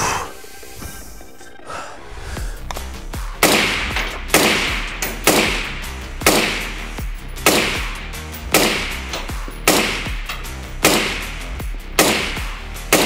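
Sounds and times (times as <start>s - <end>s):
suppressed rifle shots: 3.4s - 6.8s, 7.4s - 11.4s, 12.0s - 13.0s.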